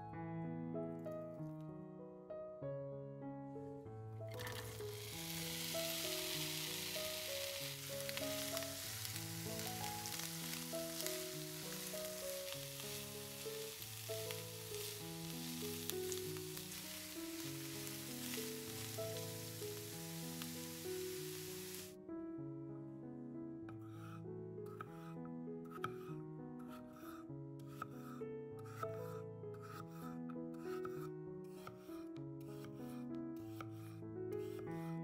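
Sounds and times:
onions sizzling in hot oil: 0:04.3 - 0:22.0.

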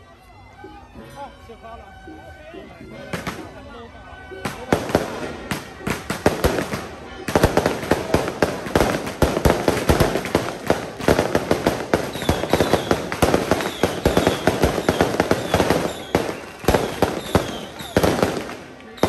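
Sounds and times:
firecrackers cracking: 0:03.1 - 0:03.6, 0:04.4 - 0:19.0.

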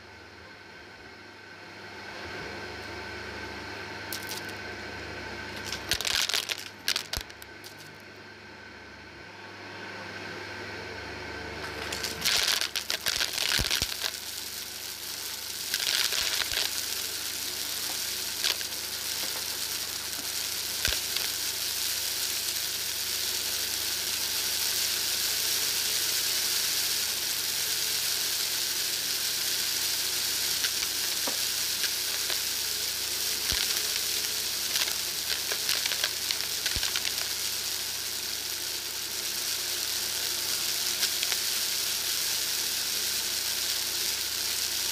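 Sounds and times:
debris crackling in vacuum: 0:04.0 - 0:04.6, 0:05.5 - 0:08.0, 0:11.6 - 0:44.9
vacuum cleaner running over carpet: 0:05.6 - 0:07.9, 0:11.6 - 0:44.9.

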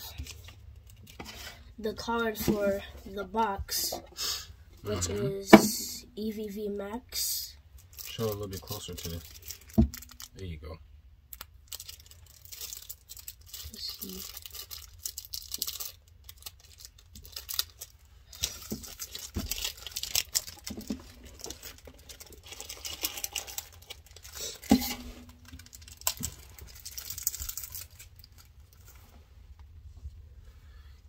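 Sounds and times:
plastic wrapper crinkling and tearing: 0:07.7 - 0:10.4, 0:11.3 - 0:29.1.

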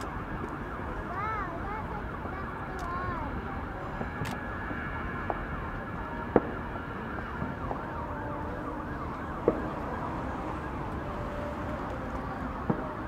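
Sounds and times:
siren wailing: 0:00.0 - 0:13.0
distant fireworks bursting: 0:03.3 - 0:13.0.

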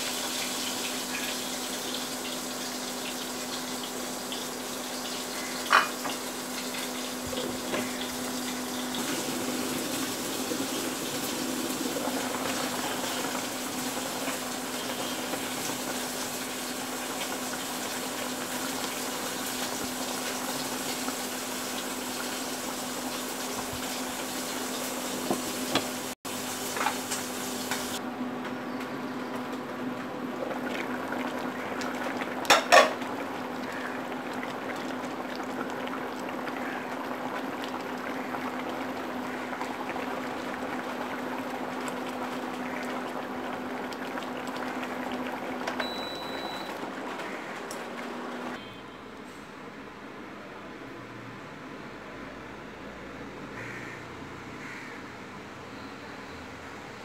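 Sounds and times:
curry bubbling in a pan: 0:30.3 - 0:47.6.

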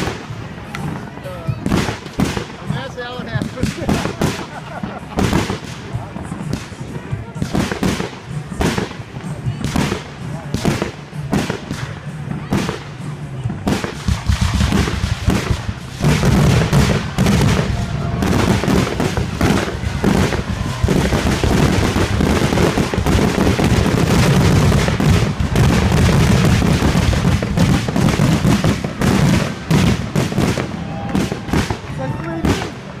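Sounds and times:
fireworks booming and crackling: 0:00.0 - 0:33.0
heavy rumble: 0:13.2 - 0:32.0.

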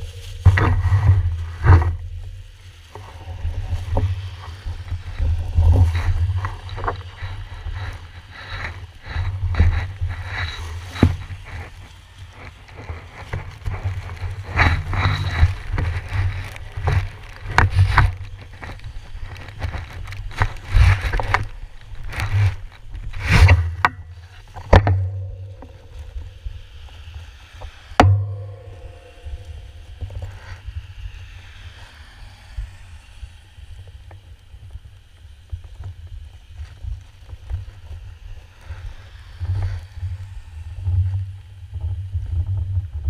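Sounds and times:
plastic sheeting rustling: 0:00.0 - 0:26.7, 0:28.0 - 0:30.8
low rumble: 0:00.0 - 0:33.8.

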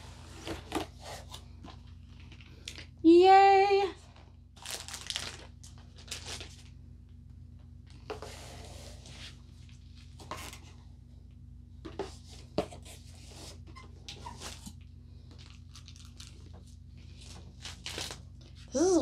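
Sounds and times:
steady low hum: 0:00.0 - 0:19.0
cardboard packaging rustling: 0:04.6 - 0:06.7, 0:12.0 - 0:18.7.

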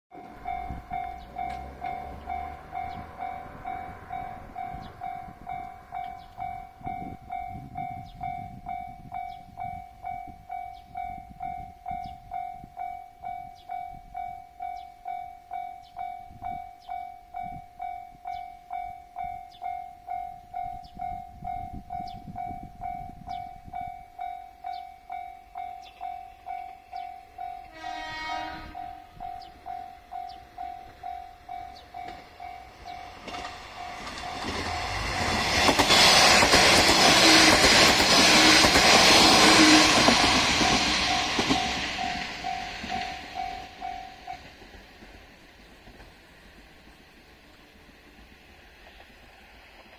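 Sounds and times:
level-crossing alarm bell: 0:00.1 - 0:44.6
diesel railcar approaching: 0:00.1 - 0:49.9
train horn: 0:27.6 - 0:29.5, 0:36.9 - 0:43.8.

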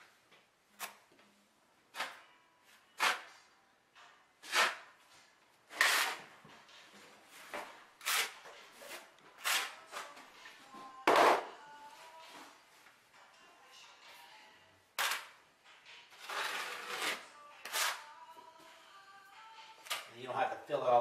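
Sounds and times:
trowels scraping mortar: 0:05.7 - 0:06.2, 0:08.0 - 0:09.8, 0:16.2 - 0:18.0.

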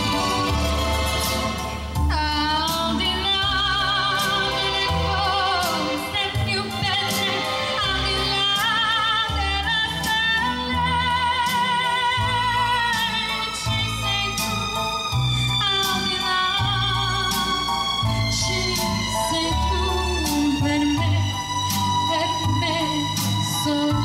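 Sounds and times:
steady drum beat: 0:00.0 - 0:07.7
backing music: 0:00.0 - 0:24.0
bass line: 0:00.0 - 0:24.0
woman singing into a microphone: 0:02.0 - 0:14.8, 0:15.6 - 0:24.0.

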